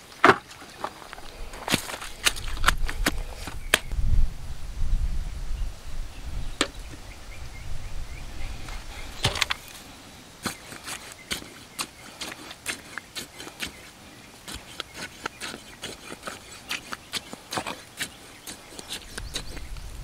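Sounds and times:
wind buffeting microphone: 1.2s - 9.9s, 18.8s - 20.0s.

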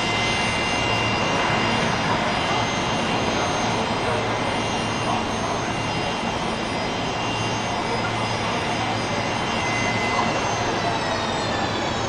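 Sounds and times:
jet engines roaring and whining: 0.0s - 12.0s.

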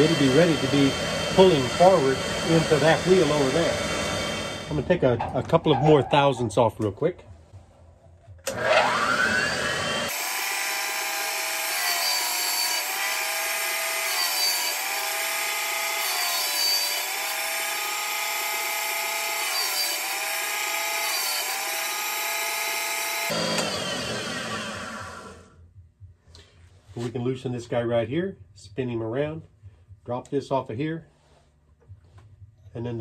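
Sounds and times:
grinder motor whining: 0.0s - 5.0s, 8.4s - 25.6s.

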